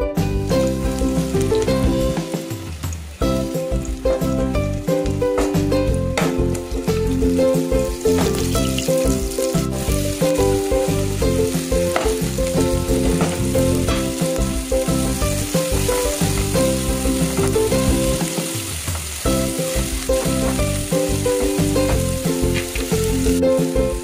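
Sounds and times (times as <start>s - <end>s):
background music: 0.0s - 24.0s
vegetables sizzling in a pot: 0.2s - 24.0s.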